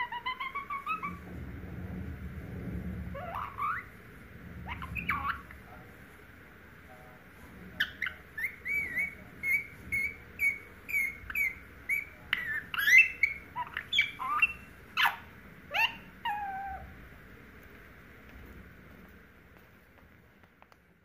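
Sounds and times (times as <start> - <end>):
parakeet chirping: 0.0 - 1.4, 3.0 - 5.8, 7.7 - 17.0.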